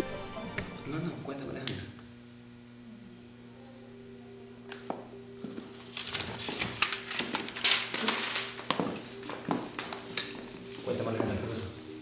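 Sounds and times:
soft background music: 0.0s - 1.9s, 3.3s - 12.0s
sharp clicks and rustles: 5.9s - 10.4s.

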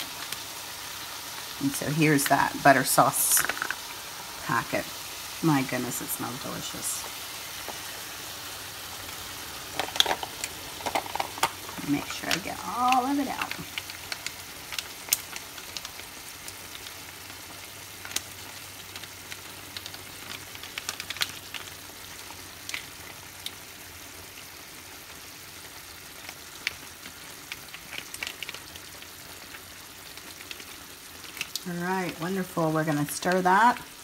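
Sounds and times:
chicken sizzling in frying pan: 0.0s - 34.0s
sharp pops and crackles: 3.2s - 4.5s, 7.0s - 8.2s, 9.0s - 23.6s, 25.9s - 32.3s.

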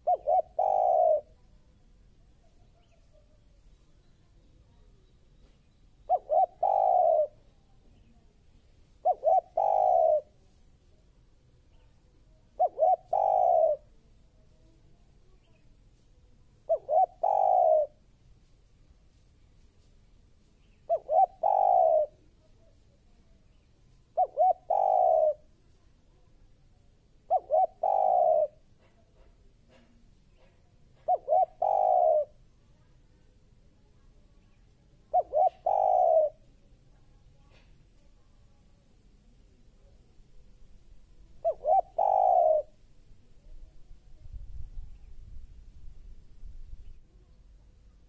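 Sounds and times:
dove cooing: 0.0s - 1.4s, 6.0s - 8.1s, 9.0s - 10.4s, 12.4s - 14.0s, 16.7s - 18.0s, 20.9s - 22.7s, 24.1s - 25.5s, 27.2s - 32.4s, 35.0s - 36.5s, 41.3s - 42.8s.

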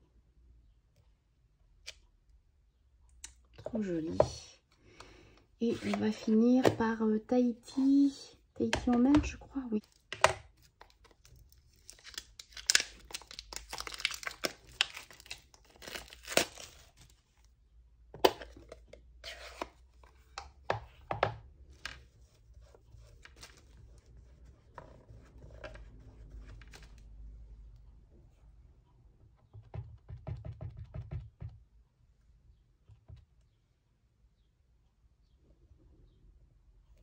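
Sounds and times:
cellophane tearing and crinkling: 11.0s - 17.2s.

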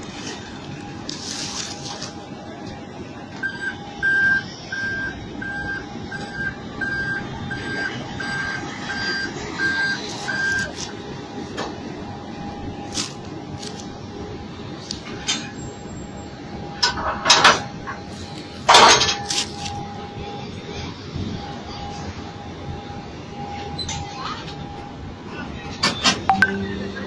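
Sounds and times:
vehicles and engines noise: 0.0s - 27.0s
vehicle reversing alarm beeping: 3.2s - 10.7s, 15.4s - 25.5s, 26.3s - 27.0s.

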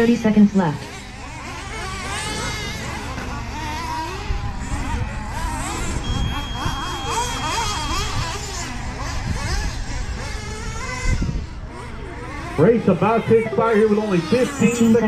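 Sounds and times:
rc truck engines whining: 0.0s - 15.0s
thin steady high tone: 5.9s - 8.5s.

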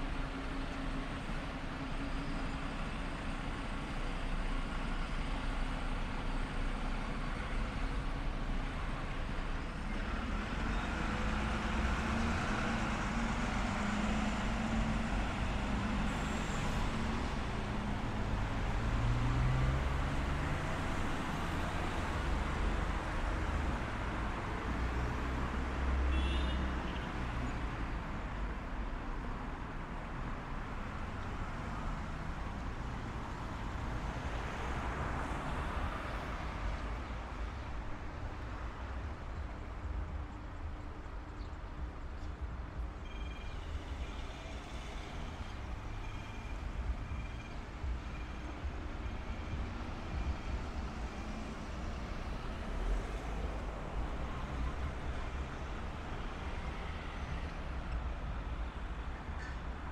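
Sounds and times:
cars driving past: 10.1s - 26.5s, 43.2s - 59.9s.

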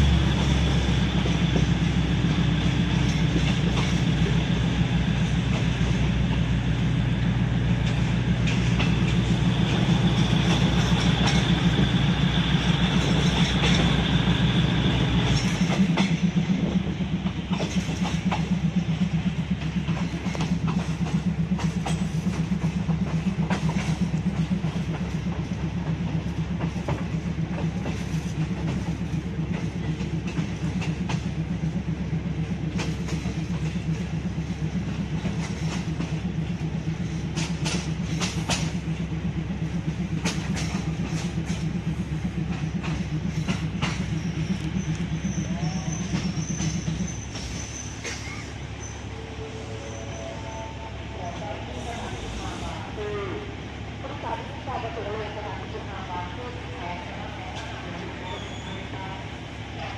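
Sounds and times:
train wheels rumbling on rails: 0.0s - 59.9s
faint rail clicks: 1.2s - 49.0s.

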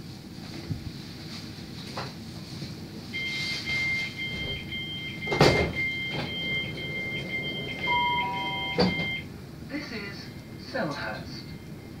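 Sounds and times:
train doors shutting with thump: 4.3s - 9.2s
two-note warning tone: 4.4s - 9.2s.

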